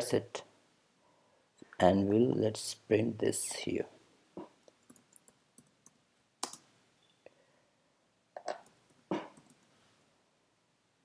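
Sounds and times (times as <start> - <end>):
computer keyboard typing: 4.8 - 6.6.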